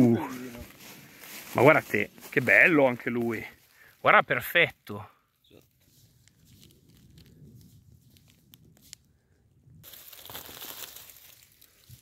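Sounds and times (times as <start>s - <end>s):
rustle of dry leaf litter: 0.0s - 2.6s, 5.7s - 9.1s, 9.8s - 12.0s.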